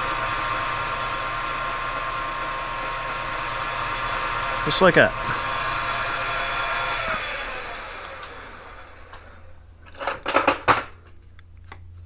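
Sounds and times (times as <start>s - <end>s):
lathe motor winding down: 0.0s - 9.6s.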